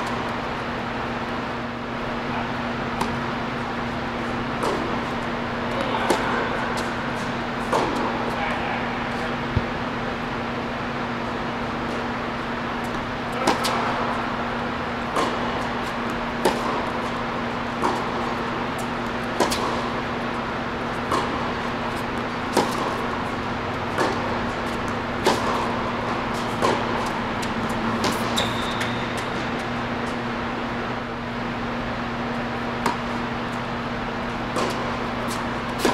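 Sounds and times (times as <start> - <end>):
steady low hum: 0.0 - 35.9
racket hitting tennis ball: 2.7 - 8.4, 11.8 - 30.9, 32.2 - 35.9.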